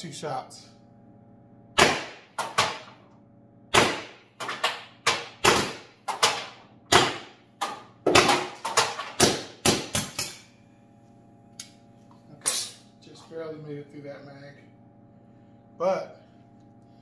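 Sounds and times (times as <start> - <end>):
launcher firing rapid shots: 1.8 - 2.8, 3.7 - 7.3.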